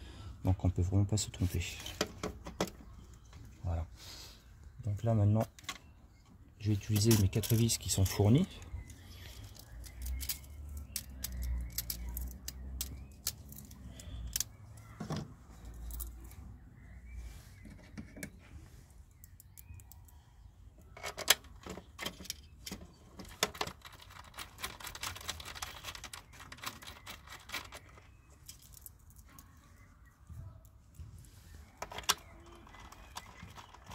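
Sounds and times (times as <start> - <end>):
small metal screws clicking: 8.9 - 14.6, 15.7 - 16.4, 19.2 - 20.2, 21.0 - 29.5.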